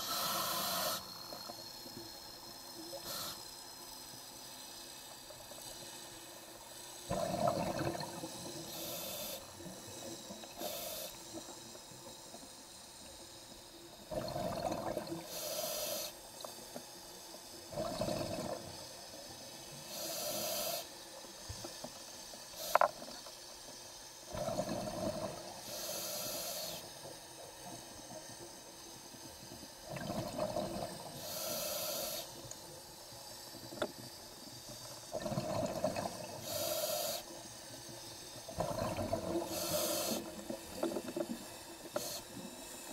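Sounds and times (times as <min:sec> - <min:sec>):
scuba regulator breathing: 0:00.0 - 0:01.6, 0:02.9 - 0:03.5, 0:08.4 - 0:11.6, 0:15.2 - 0:16.2, 0:19.8 - 0:21.0, 0:24.4 - 0:26.9, 0:30.6 - 0:32.4, 0:35.2 - 0:37.4, 0:38.8 - 0:42.9.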